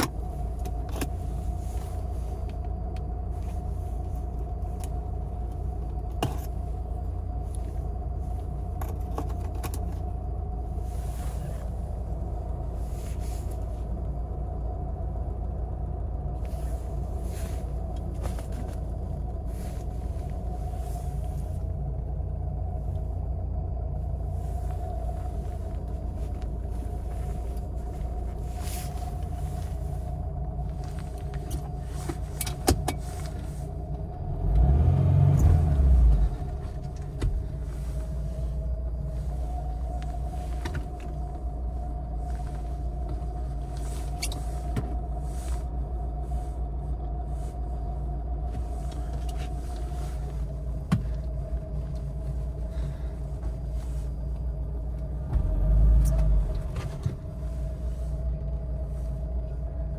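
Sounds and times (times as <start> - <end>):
car engine idling: 0.0 - 59.9.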